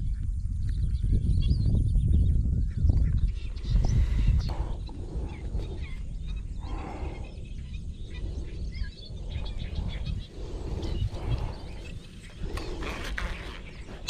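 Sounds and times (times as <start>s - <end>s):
small birds chirping: 0.0s - 14.0s
low uneven rumble: 3.4s - 14.0s.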